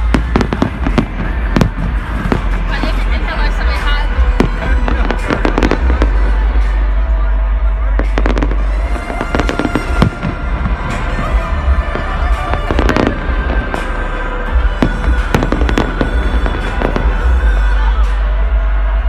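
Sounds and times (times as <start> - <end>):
fireworks bangs: 0.0 - 17.7
low rumble: 0.0 - 18.8.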